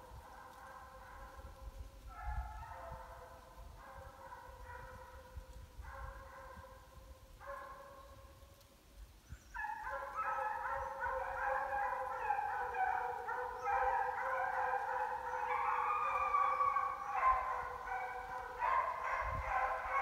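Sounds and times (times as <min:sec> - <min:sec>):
hounds baying: 0:02.1 - 0:05.3, 0:09.6 - 0:20.0.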